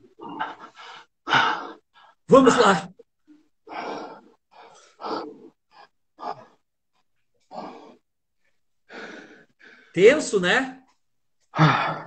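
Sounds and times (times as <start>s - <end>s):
person breathing heavily: 0.0s - 2.2s, 3.3s - 10.0s, 11.5s - 12.0s.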